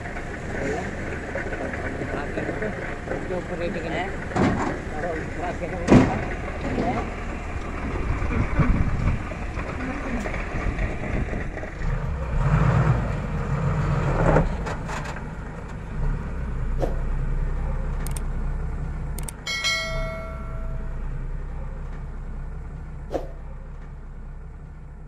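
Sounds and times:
diesel engine idling: 0:00.0 - 0:25.0
short ringing tone: 0:19.4 - 0:21.2.

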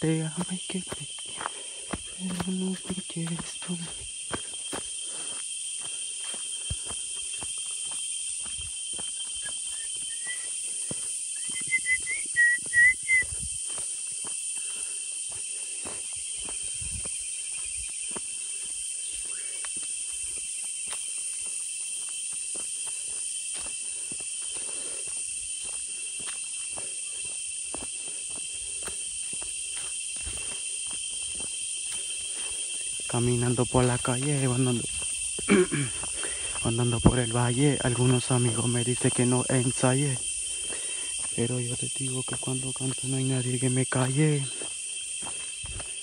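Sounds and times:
footsteps crunching on dirt path: 0:00.0 - 0:46.0
insects droning: 0:00.0 - 0:46.0
whistled chirps: 0:09.0 - 0:10.7, 0:11.3 - 0:13.5.

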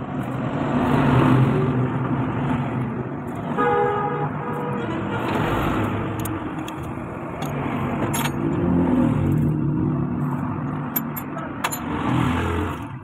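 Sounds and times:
vehicle engines running: 0:00.0 - 0:13.0
sharp metallic clicks: 0:05.2 - 0:08.6, 0:10.2 - 0:12.0.

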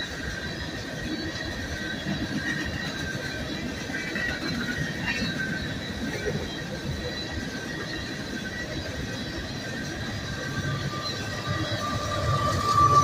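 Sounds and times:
train wheels rumbling on rail: 0:00.0 - 0:13.0
high-pitched wheel flange squeal: 0:04.8 - 0:13.0.

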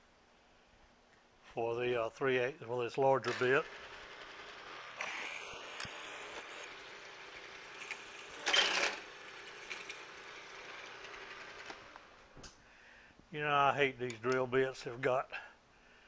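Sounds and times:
milling machine humming: 0:03.7 - 0:12.1.

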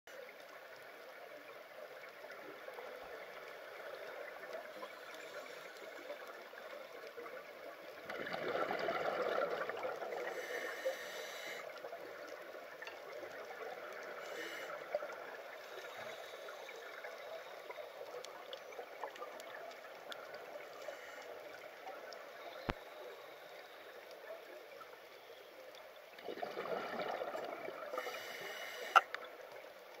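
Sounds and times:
underwater crackle and hiss: 0:00.1 - 0:30.0.

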